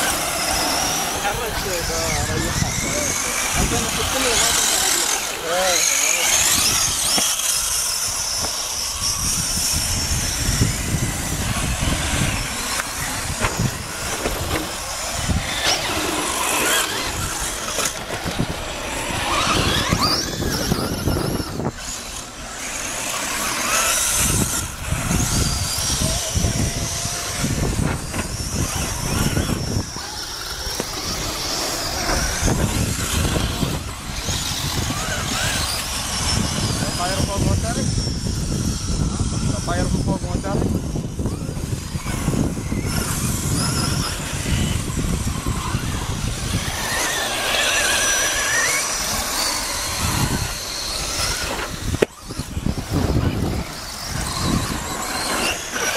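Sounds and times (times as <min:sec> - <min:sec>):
electric rc car motors whining: 0:00.0 - 0:55.9
wind buffeting microphone: 0:00.0 - 0:55.9.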